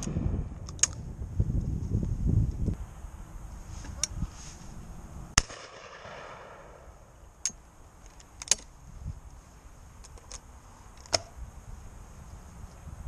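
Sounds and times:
low microphone rumble: 0.0s - 7.9s
shotgun shots echoing: 5.4s - 7.0s.

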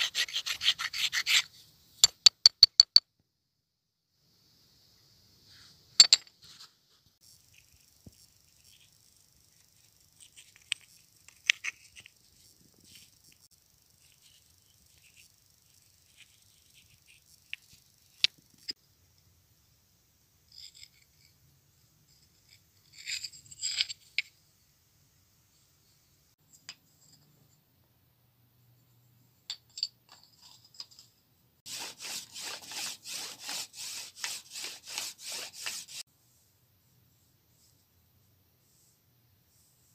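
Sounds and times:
wood rasping against stone: 0.0s - 1.5s, 31.7s - 36.0s.

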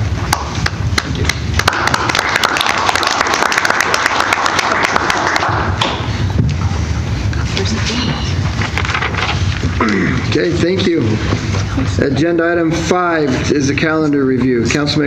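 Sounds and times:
small group applauding: 0.2s - 6.1s.

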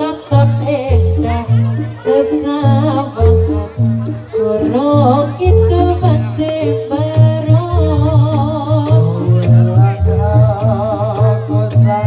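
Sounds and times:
person singing ornamented melody: 0.0s - 12.0s.

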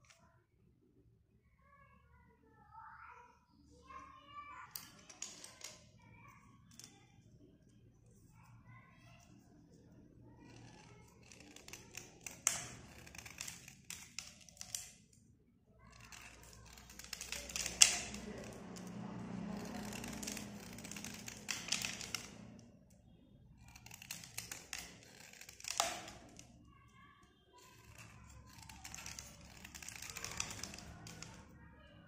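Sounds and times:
metal blade scraping slate pencil: 10.4s - 14.9s, 15.9s - 22.4s, 23.6s - 26.5s, 27.6s - 31.4s.

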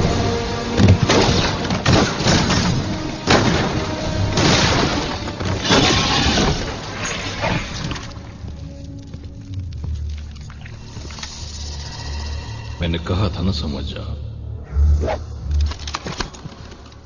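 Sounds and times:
film score music: 0.0s - 17.0s
debris crashing: 0.8s - 8.4s.

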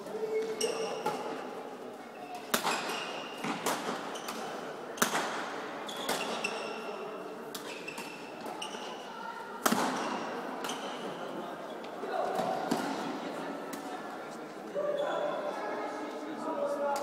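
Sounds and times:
shoes squeaking on court floor: 0.0s - 1.4s, 2.1s - 5.2s, 5.8s - 7.0s, 7.6s - 9.1s, 10.0s - 11.9s, 14.8s - 15.5s
badminton racket hitting shuttlecock: 2.4s - 6.6s, 9.6s - 10.9s.

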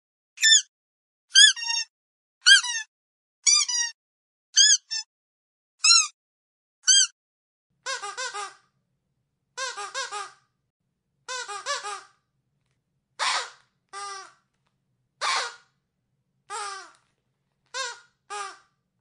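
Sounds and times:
squeaky dog toy: 0.4s - 0.7s, 1.3s - 4.0s, 4.6s - 5.1s, 5.8s - 6.2s, 6.8s - 7.2s, 7.8s - 8.7s, 9.6s - 10.5s, 11.3s - 12.2s, 13.2s - 14.4s, 15.2s - 15.8s, 16.5s - 17.0s, 17.7s - 18.8s.

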